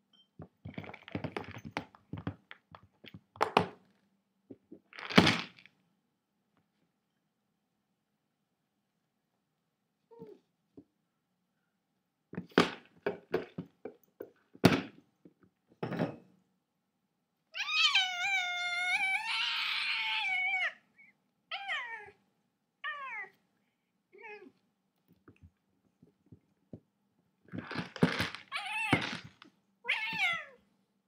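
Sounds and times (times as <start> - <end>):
cat meowing: 17.6 - 20.8, 29.8 - 30.6.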